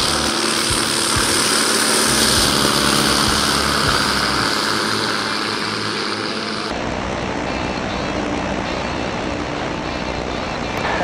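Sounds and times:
airplane engine and propeller: 0:00.0 - 0:11.0.

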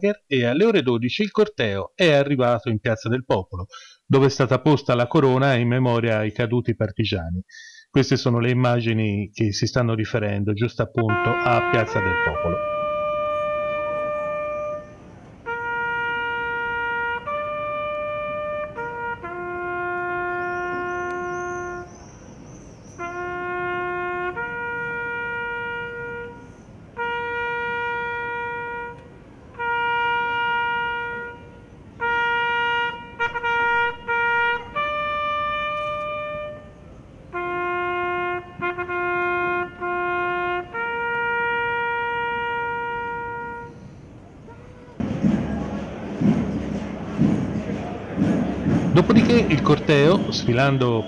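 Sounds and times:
solo trumpet military call: 0:11.0 - 0:22.0, 0:22.9 - 0:45.1.

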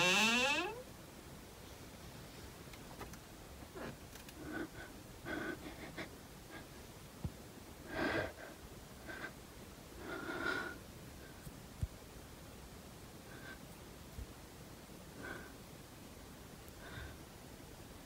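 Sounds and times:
person breathing faintly: 0:03.7 - 0:06.8, 0:07.8 - 0:09.4, 0:10.0 - 0:11.5, 0:13.2 - 0:13.8, 0:16.7 - 0:17.3.

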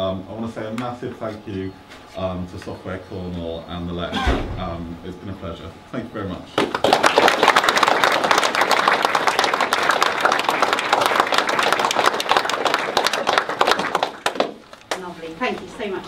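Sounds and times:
audience applauding: 0:06.6 - 0:14.7.

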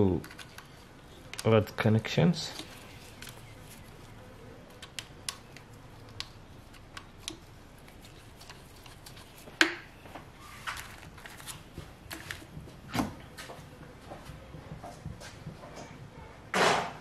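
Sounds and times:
connectors clicking and rustling: 0:00.0 - 0:13.4.

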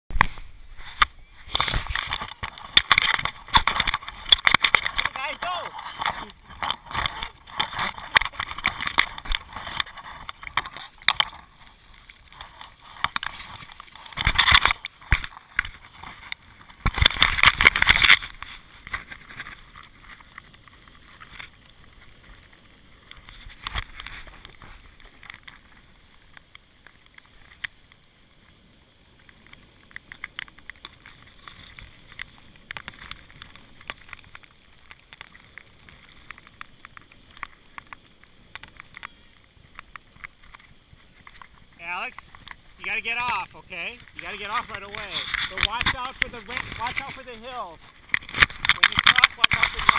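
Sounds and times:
snow tube scraping over snow: 0:00.6 - 0:25.0.

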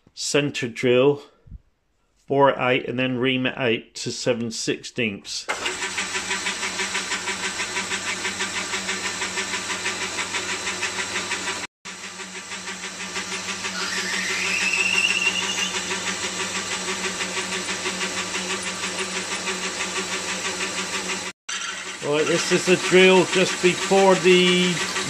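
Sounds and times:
metal lathe running: 0:05.5 - 0:25.0
drill squealing: 0:13.2 - 0:25.0.

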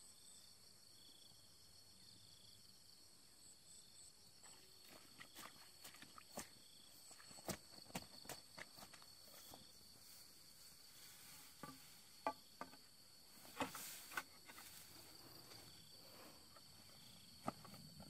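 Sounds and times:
crickets chirring: 0:00.0 - 0:18.0
footsteps in rubber boots on grass: 0:04.4 - 0:17.8
bamboo poles knocking: 0:11.6 - 0:14.7.

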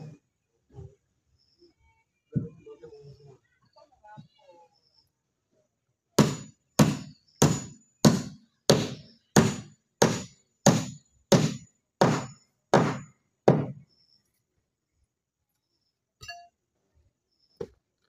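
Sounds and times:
hammer driving nails into wood: 0:06.2 - 0:13.8.

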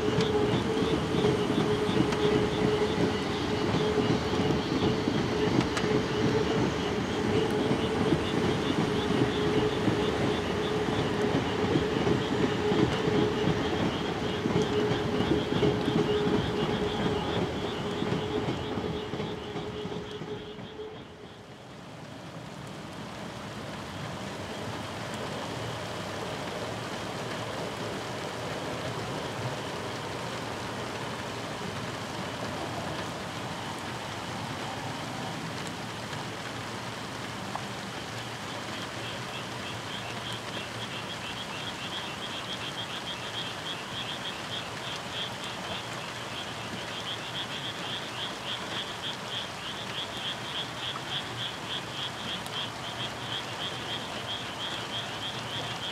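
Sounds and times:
frogs calling in pulsed trills: 0:00.0 - 0:21.4, 0:38.2 - 0:55.9
steady background hiss: 0:00.0 - 0:55.9.

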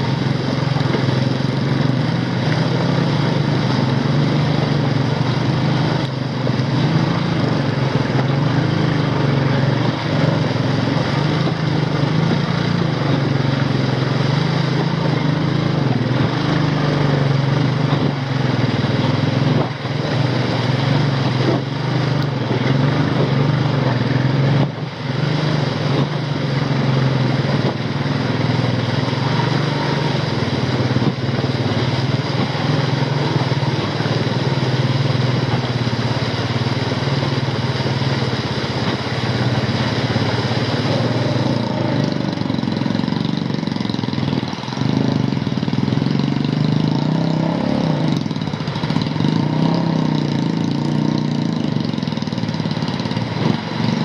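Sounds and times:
motorcycle engine labouring: 0:00.0 - 0:54.0.

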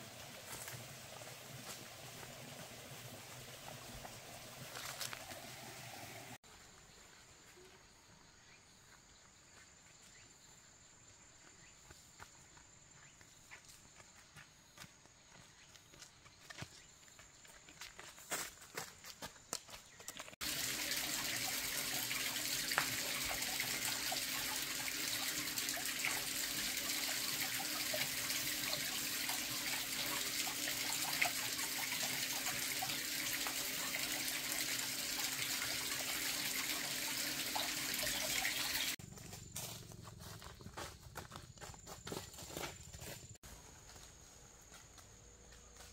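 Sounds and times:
running water rushing: 0:00.0 - 0:06.4, 0:20.4 - 0:39.0.

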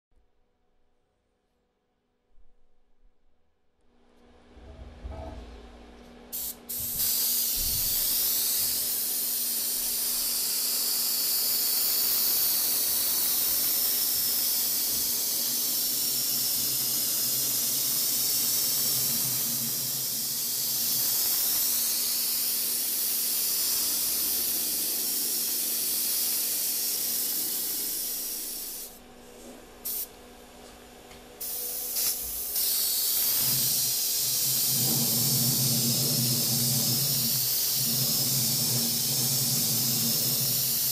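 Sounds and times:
airbrush spraying hiss: 0:06.3 - 0:29.0, 0:29.8 - 0:30.2, 0:31.4 - 0:40.9.

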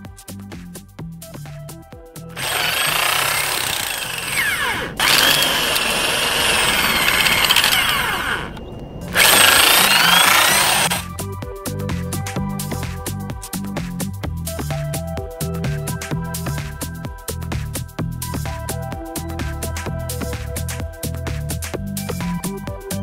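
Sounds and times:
electric drill whining: 0:02.4 - 0:11.0.

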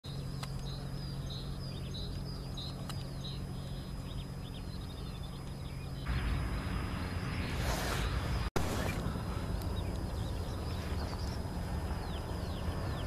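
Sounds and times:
small birds chirping: 0:00.1 - 0:13.0
turboprop aircraft drone: 0:00.1 - 0:13.0.

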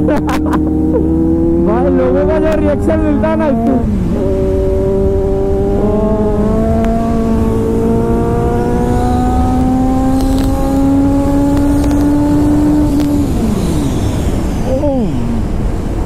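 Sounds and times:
motorcycle engine accelerating: 0:00.0 - 0:16.0
wind rushing over microphone: 0:00.0 - 0:16.0.

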